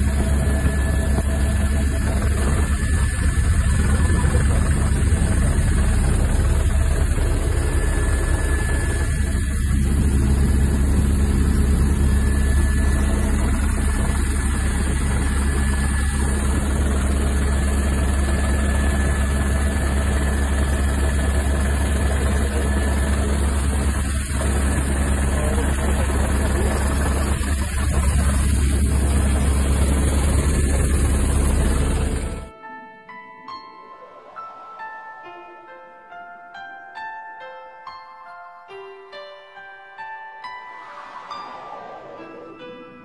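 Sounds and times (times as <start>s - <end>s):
helicopter engine and rotor drone: 0.0s - 32.6s.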